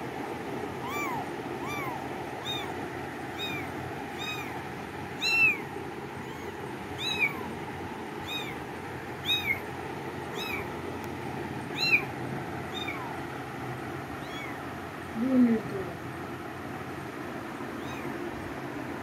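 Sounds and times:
kitten meowing: 0.8s - 4.6s, 5.2s - 7.6s, 8.2s - 9.7s, 10.3s - 10.7s, 11.7s - 12.1s, 12.7s - 13.2s, 14.2s - 14.6s, 17.8s - 18.2s.

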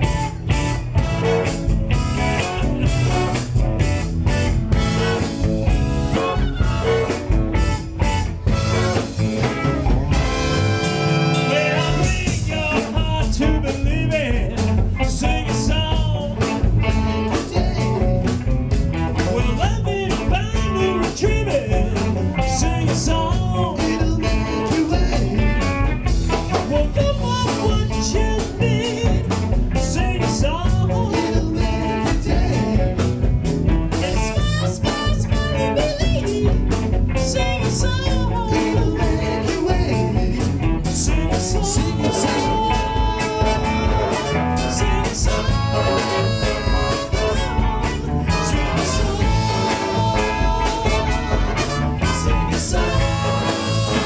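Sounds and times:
live blues rock band: 0.0s - 54.0s.

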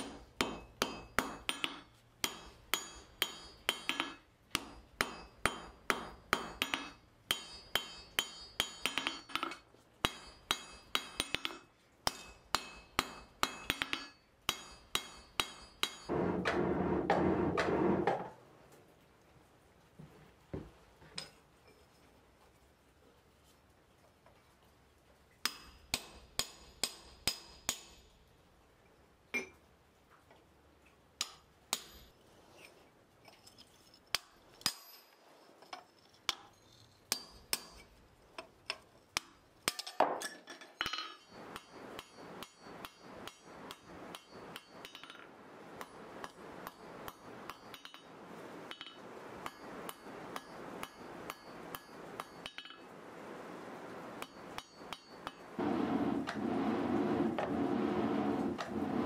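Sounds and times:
hammer striking metal on anvil: 0.0s - 17.9s, 25.4s - 28.0s, 31.2s - 32.1s, 37.1s - 37.9s, 39.2s - 48.1s, 48.7s - 52.8s, 54.2s - 55.5s.

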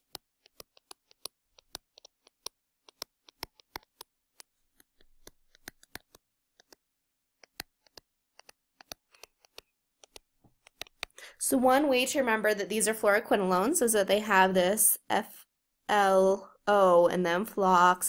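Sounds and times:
stylus clicking on drawing tablet: 0.0s - 11.2s.

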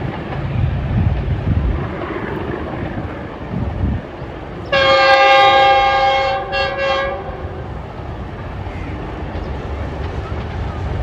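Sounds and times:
train rumble: 0.0s - 11.0s
locomotive air horn: 4.7s - 7.5s.

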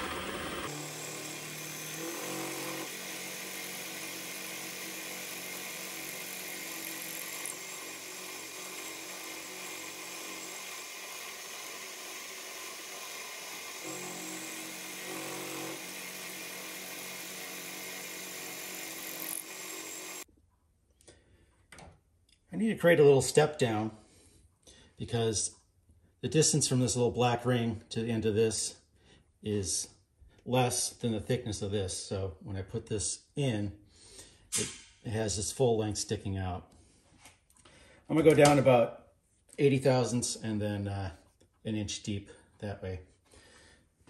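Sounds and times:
milling spindle motor whine: 0.0s - 2.9s.

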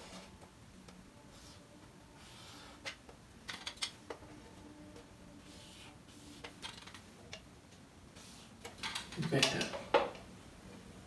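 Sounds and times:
marker scratching on whiteboard: 1.3s - 2.9s, 5.4s - 6.8s, 8.2s - 8.5s.

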